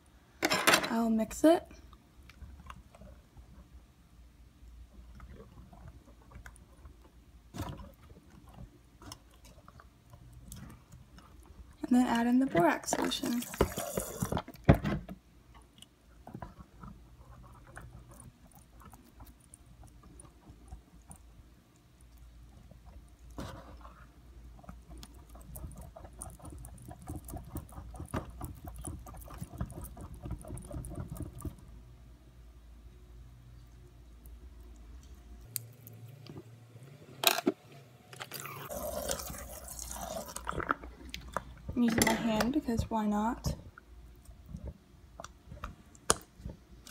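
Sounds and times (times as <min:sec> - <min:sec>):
spoon stirring sticky slime: 0:15.6 - 0:31.7, 0:38.5 - 0:42.7.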